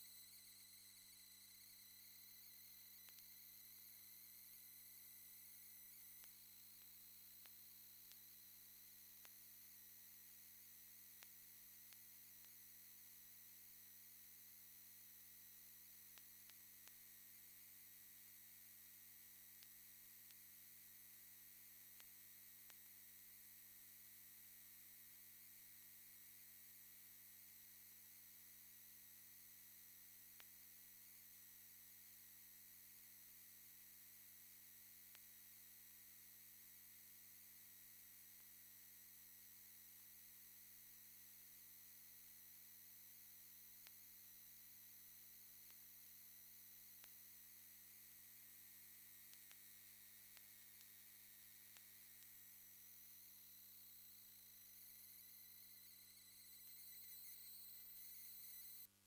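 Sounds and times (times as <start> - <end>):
electrical hum and hiss: 0.0 - 59.0
faint clicks: 3.0 - 3.4, 6.1 - 8.3, 49.2 - 52.4.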